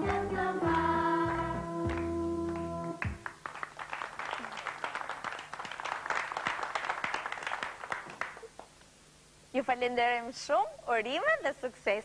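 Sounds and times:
children's song: 0.0s - 3.2s
children clapping: 0.1s - 8.7s.

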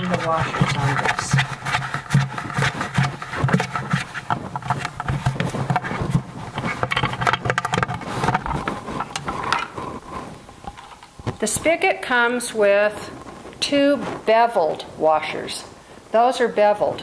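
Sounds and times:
plastic clicks and scrapes: 0.0s - 11.5s.

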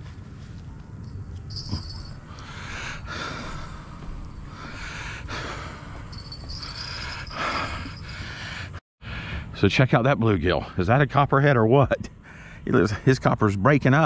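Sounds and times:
low wind rumble: 0.0s - 13.9s
person breathing close: 2.2s - 9.5s.

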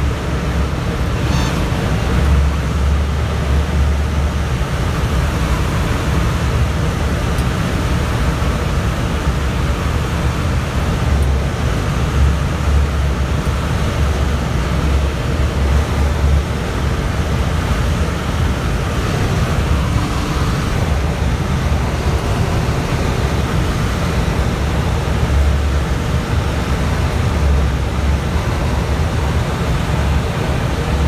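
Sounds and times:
loud rush of wind: 0.0s - 31.0s
low buffeting rumble: 0.0s - 31.0s.

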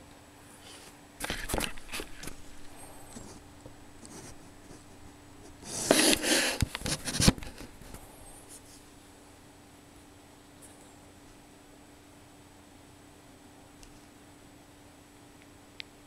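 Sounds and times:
rustling handling noise: 0.6s - 8.9s.

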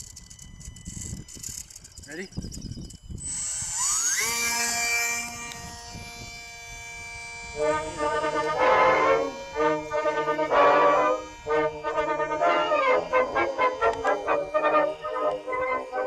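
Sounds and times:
electric motor high whine: 0.0s - 16.0s
brass music with horn chords: 7.6s - 16.0s.

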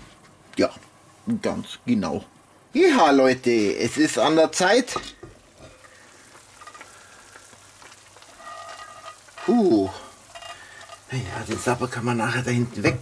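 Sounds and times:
stew simmering and bubbling: 0.0s - 13.0s.

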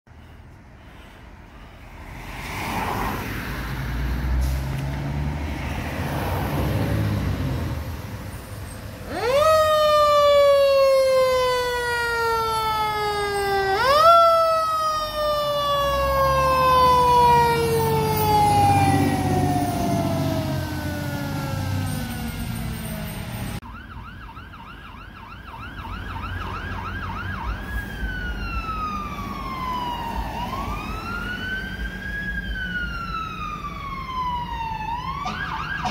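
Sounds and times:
engine rumble: 0.1s - 23.7s
fire truck siren wailing: 9.0s - 35.9s
siren yelping warble: 9.1s - 22.8s, 32.5s - 35.9s.

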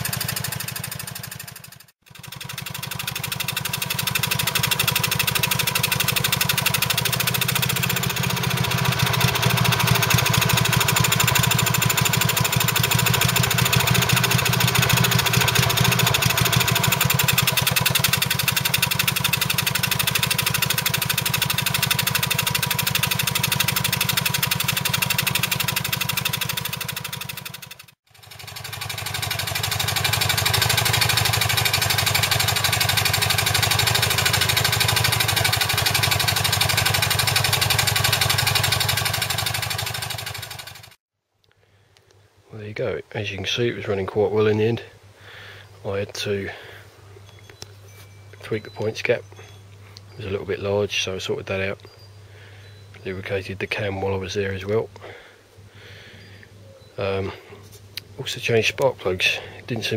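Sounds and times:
stationary engine running: 0.0s - 41.0s.

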